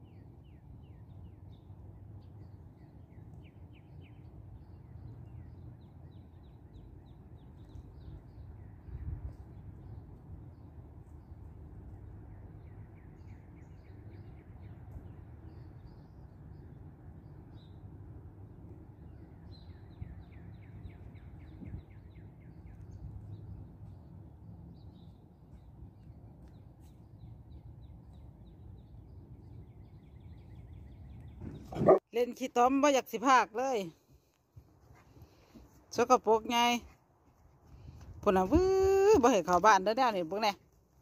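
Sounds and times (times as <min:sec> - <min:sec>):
songbirds trilling: 0:18.8 - 0:32.0.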